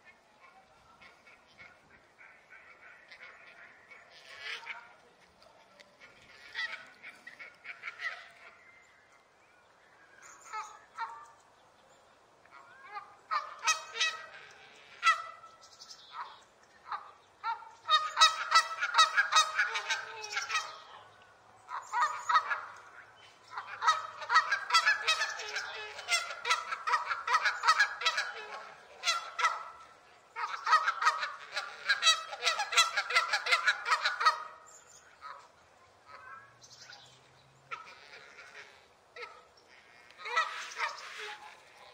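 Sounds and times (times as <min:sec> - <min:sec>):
geese honking: 0:12.6 - 0:21.1, 0:21.7 - 0:35.5, 0:37.7 - 0:41.9.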